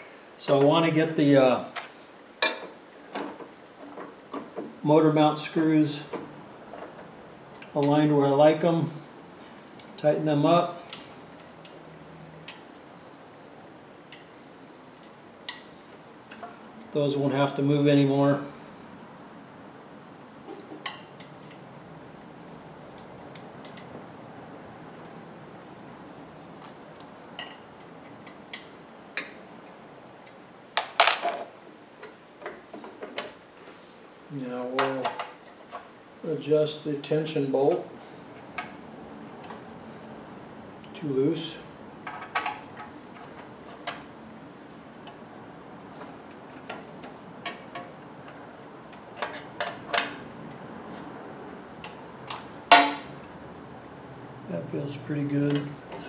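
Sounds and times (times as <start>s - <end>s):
metal clatter of knocks: 52.3s - 53.2s
loud metal knock: 52.7s - 53.1s.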